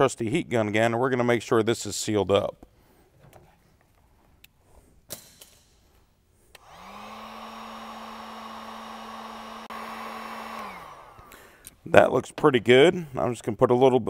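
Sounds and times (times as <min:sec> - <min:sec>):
heat gun fan whirring: 0:06.5 - 0:11.9.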